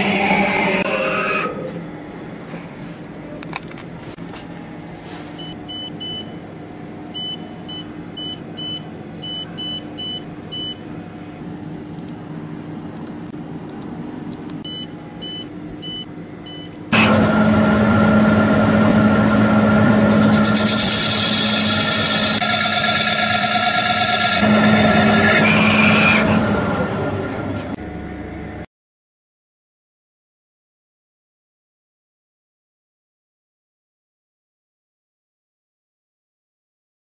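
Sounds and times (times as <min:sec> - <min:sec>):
lathe cutting noise: 0:00.0 - 0:01.5, 0:16.9 - 0:27.8
lathe humming: 0:16.9 - 0:27.8.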